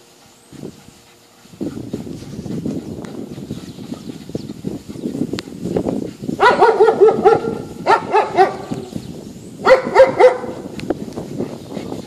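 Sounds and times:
dog barking: 0:06.4 - 0:08.9, 0:09.6 - 0:10.6.

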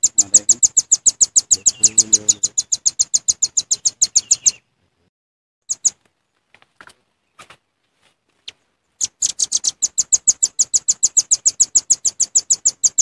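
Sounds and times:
bird chipping calls: 0:00.0 - 0:04.6, 0:05.6 - 0:06.0, 0:08.4 - 0:13.0.

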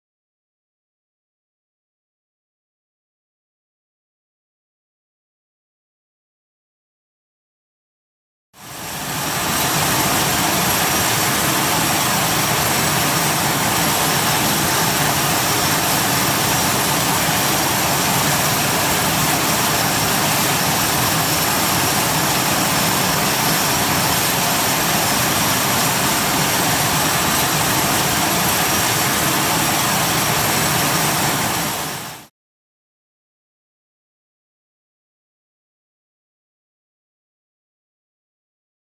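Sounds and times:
high turbine whine: 0:08.6 - 0:32.3.

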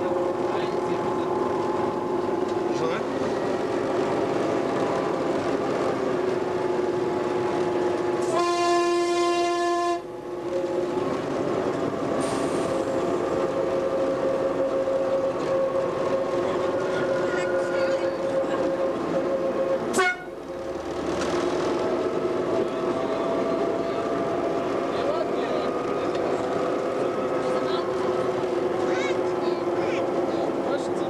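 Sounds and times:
diesel locomotive running: 0:00.0 - 0:31.0
locomotive horn blast: 0:08.2 - 0:10.1, 0:17.0 - 0:20.4.

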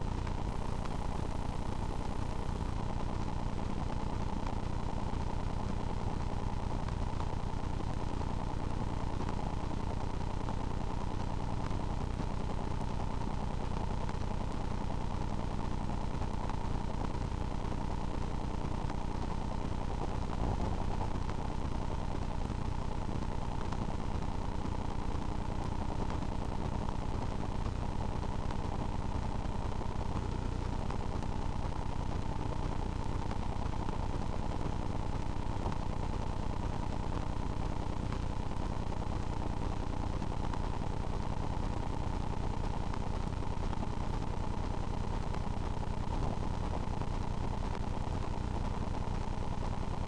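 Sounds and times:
mechanical hum: 0:00.0 - 0:13.9.

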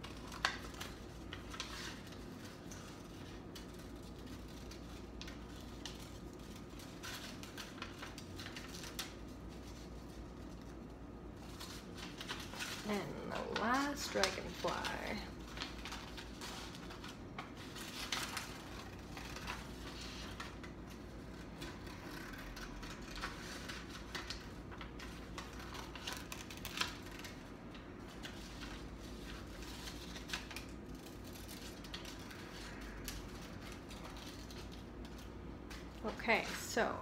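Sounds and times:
paper rustling: 0:00.0 - 0:36.6
scissors snipping paper: 0:11.5 - 0:27.4.

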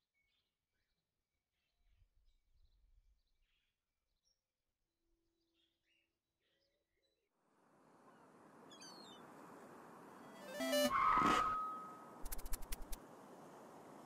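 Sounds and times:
short tones: 0:10.3 - 0:13.0.

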